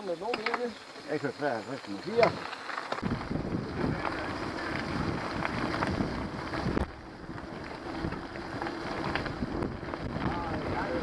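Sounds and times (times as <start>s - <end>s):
tyres rolling on gravel: 0.0s - 11.0s
wind buffeting microphone: 3.0s - 11.0s.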